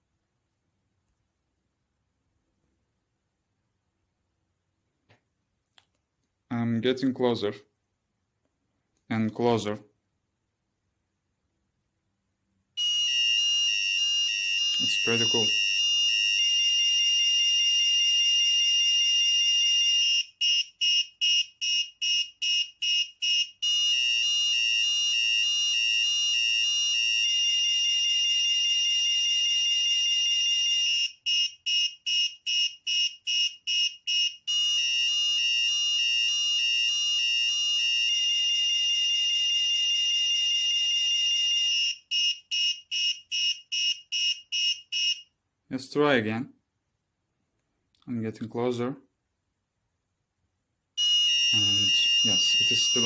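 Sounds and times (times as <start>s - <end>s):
shrill alarm tone: 12.8s - 20.2s, 51.0s - 53.0s.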